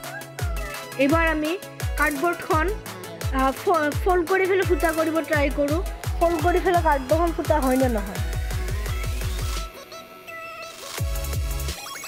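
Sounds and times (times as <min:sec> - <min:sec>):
electronic music held notes: 0:00.0 - 0:12.0
pulsing bass: 0:01.2 - 0:09.6.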